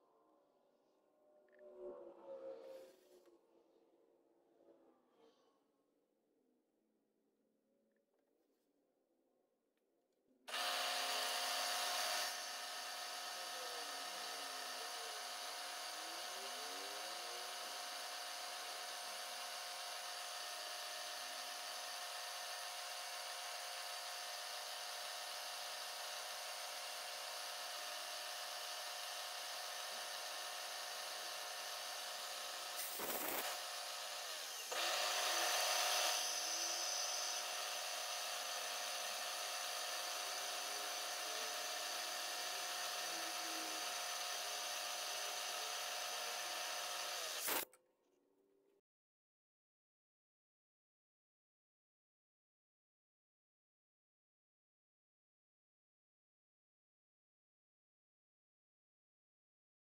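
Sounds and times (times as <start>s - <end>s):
milling machine spindle whine: 10.5s - 47.6s
drill bit cutting metal: 10.5s - 47.7s.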